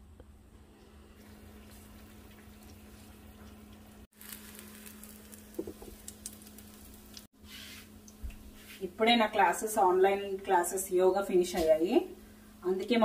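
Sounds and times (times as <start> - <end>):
quiet hum: 0.0 - 13.0
food sizzling in hot oil: 4.0 - 7.9
utensil knocking: 5.5 - 6.0.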